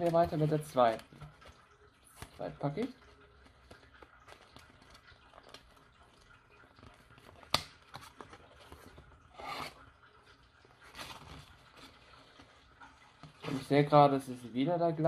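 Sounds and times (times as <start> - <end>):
paper rustling and crinkling: 0.0 - 14.0.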